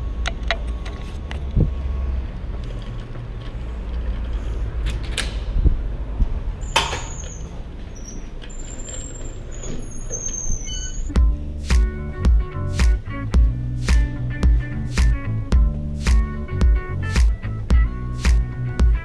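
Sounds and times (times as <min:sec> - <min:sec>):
low rumble of street traffic: 0:00.0 - 0:19.0
glass door swinging open: 0:06.6 - 0:11.1.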